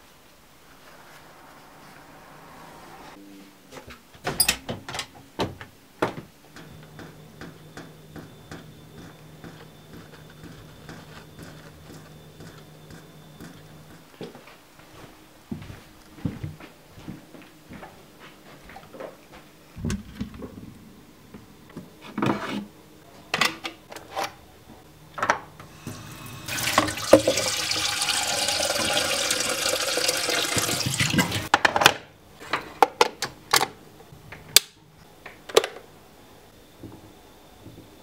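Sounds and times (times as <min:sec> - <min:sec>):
tap water running into kettle: 0:25.8 - 0:31.5.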